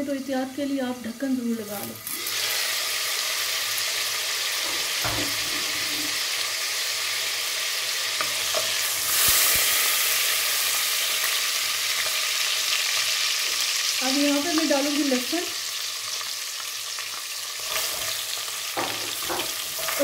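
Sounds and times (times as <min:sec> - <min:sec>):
hot oil sizzling: 0:00.0 - 0:20.0
wooden spoon stirring onions: 0:17.7 - 0:20.0.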